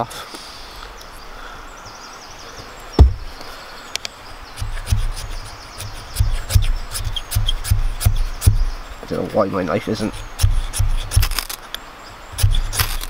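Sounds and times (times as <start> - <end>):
sharp knock: 3.0 - 3.3
knife scraping ferrocerium rod: 4.6 - 8.5, 9.9 - 11.6, 12.4 - 13.0.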